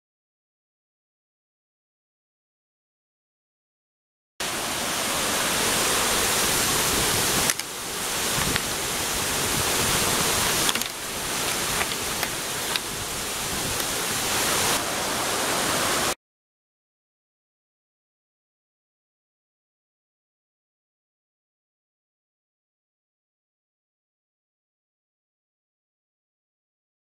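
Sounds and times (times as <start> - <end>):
rushing mountain torrent: 4.4 - 16.2.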